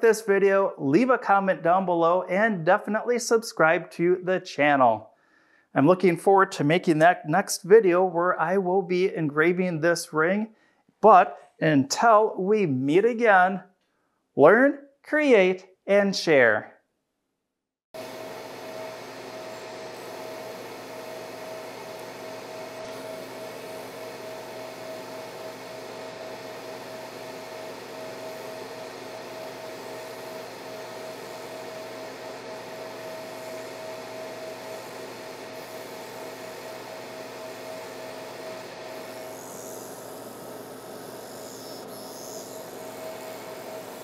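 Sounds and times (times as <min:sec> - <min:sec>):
laser marking machine hiss: 0:18.0 - 0:44.0.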